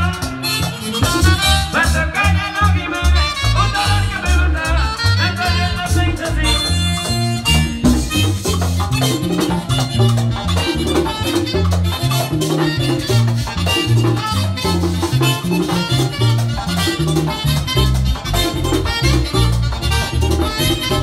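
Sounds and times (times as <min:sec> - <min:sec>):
hand drums: 0:00.0 - 0:04.2, 0:07.0 - 0:21.0
accordion melody: 0:00.0 - 0:21.0
bass line: 0:00.0 - 0:21.0.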